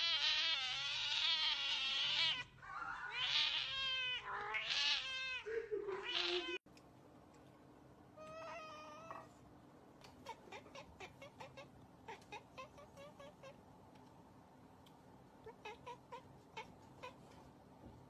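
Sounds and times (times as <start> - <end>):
cat meowing: 0.0 - 6.6, 8.2 - 9.3.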